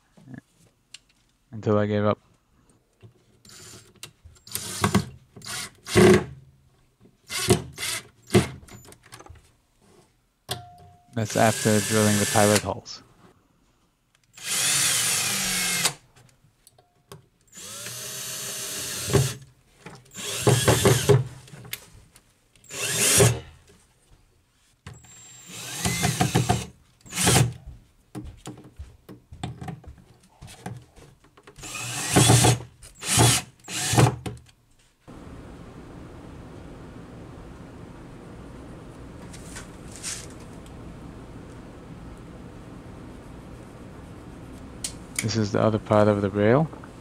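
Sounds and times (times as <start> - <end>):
cordless drill driving screws: 3.4 - 6.2, 7.3 - 8.5, 11.3 - 12.6, 14.3 - 16.0, 17.5 - 19.4, 20.1 - 21.3, 22.7 - 23.4, 25.0 - 27.6, 31.6 - 34.2.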